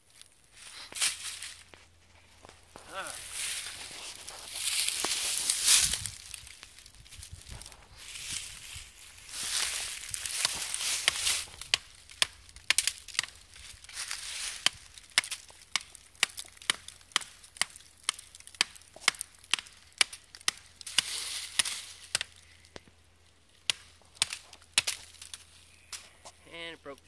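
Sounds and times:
axe chopping into tree: 10.0 - 13.4, 14.0 - 22.4, 23.6 - 25.5.

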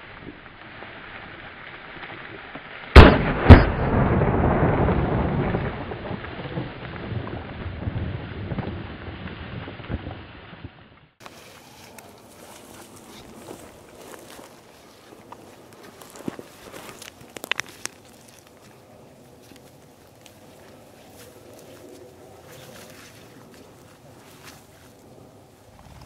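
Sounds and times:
shotgun shots echoing: 3.0 - 4.7.

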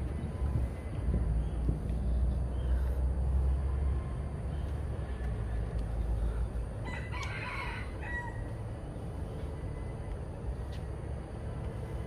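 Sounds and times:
steady low rumble: 0.0 - 12.0
rooster crowing: 6.8 - 8.5.

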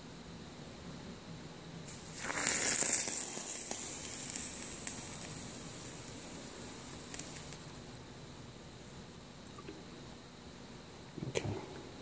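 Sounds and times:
hot metal sizzling in water: 1.9 - 8.0.

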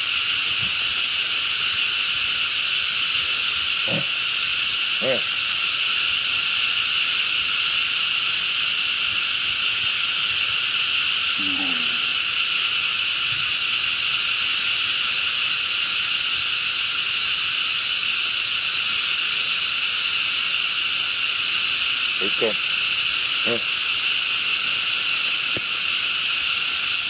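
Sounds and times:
insect chorus: 0.0 - 27.0
short low call: 11.4 - 12.2.

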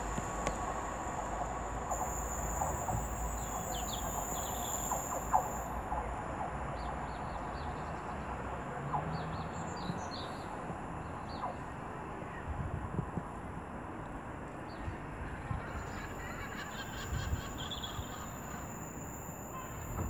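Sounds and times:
steady high whine: 0.0 - 6.3, 16.8 - 20.0
diesel train rumbling: 0.0 - 20.0
small birds chirping: 2.0 - 5.7.

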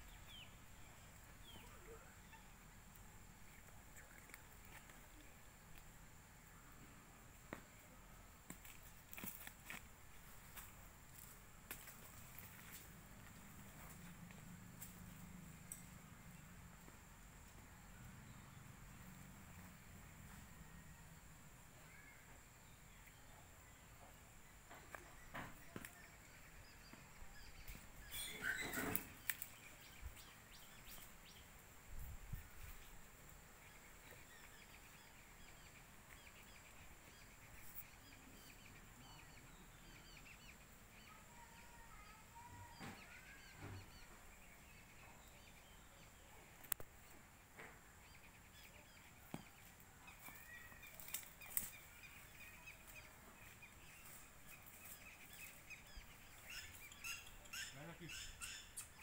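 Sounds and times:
faint birdsong: 0.0 - 59.0
soft clicks: 46.6 - 46.9.

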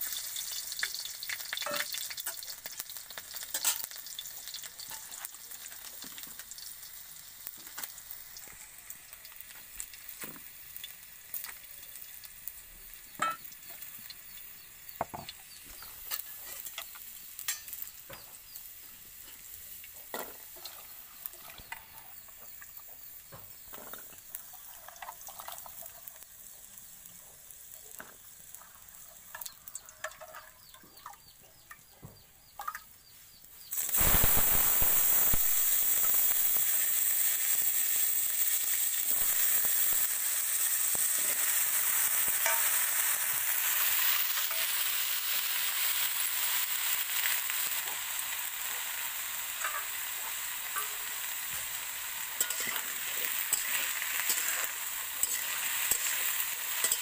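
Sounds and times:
potatoes sizzling in hot oil: 0.0 - 57.0
clinks of steel bowls and utensils: 1.5 - 2.4, 13.2 - 13.5, 16.1 - 18.2, 29.3 - 31.2, 32.6 - 32.9, 52.4 - 56.2, 56.8 - 57.0.

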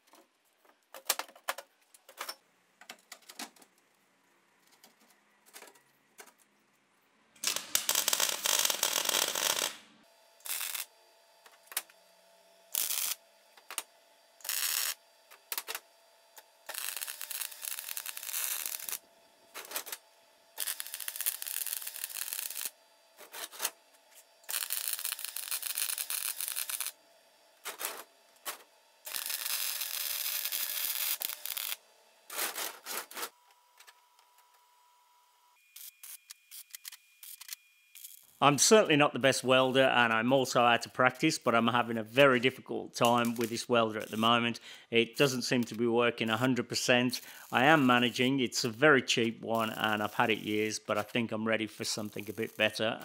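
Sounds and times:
mig welder welding: 7.4 - 12.0, 12.7 - 27.0, 27.6 - 33.3, 35.6 - 44.4, 45.1 - 53.0
welder spurts: 7.4 - 12.0, 12.7 - 15.8, 16.4 - 20.0, 20.6 - 27.0, 27.6 - 33.4, 35.6 - 53.0.

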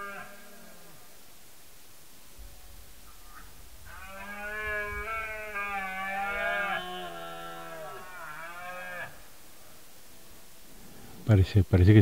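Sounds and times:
deer stag roaring: 0.0 - 1.2, 2.9 - 11.1.

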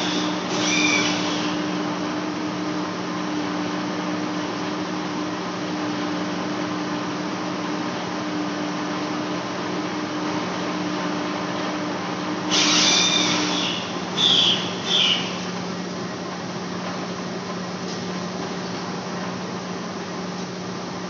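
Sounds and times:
high-pitched machining noise: 0.0 - 1.8, 12.5 - 15.5
lathe machine hum: 0.0 - 16.5.

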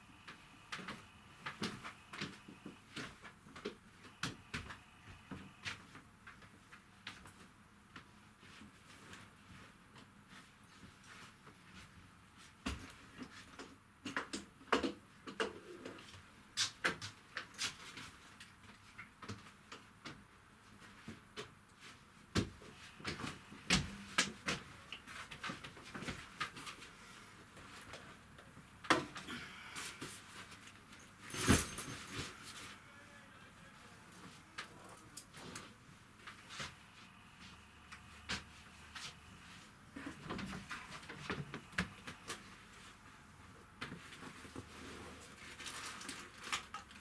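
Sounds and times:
bags and clothes rustling: 29.5 - 32.8.

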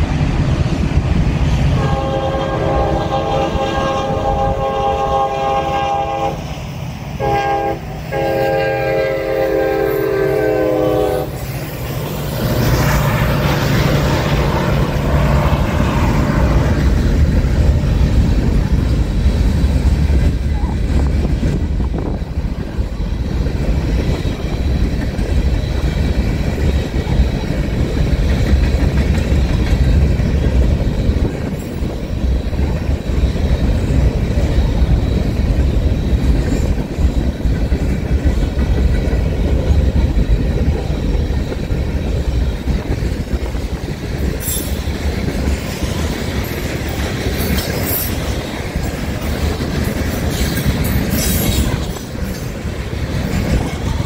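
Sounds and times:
train wheels rumbling on rails: 0.0 - 54.0
metallic clanks and squeal: 49.9 - 52.6.

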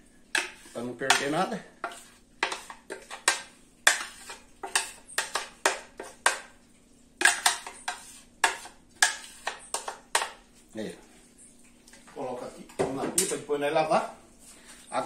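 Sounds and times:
spoon scraping a blender jar: 0.4 - 6.4, 7.2 - 10.4.

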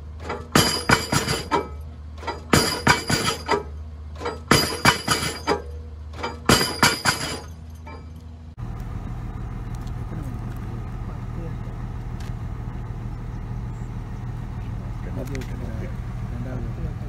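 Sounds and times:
pile driver metallic clanks: 0.0 - 8.4
piling rig hum: 0.0 - 17.0
steady engine noise: 0.0 - 17.0.

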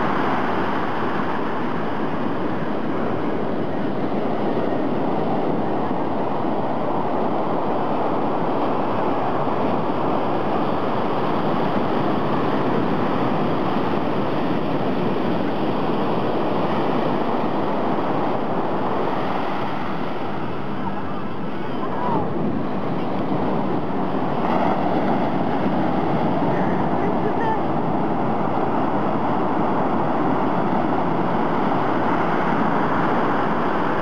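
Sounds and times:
ocean surf breaking on beach: 0.0 - 34.0.

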